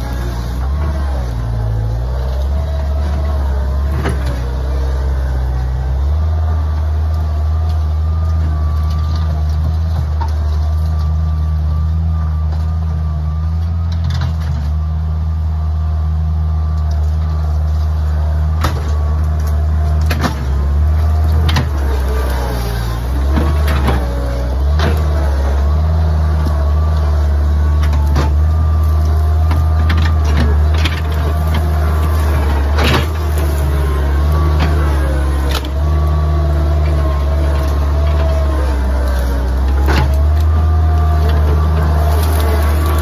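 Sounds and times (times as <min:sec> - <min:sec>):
skid steer engine running: 0:00.0 - 0:43.0.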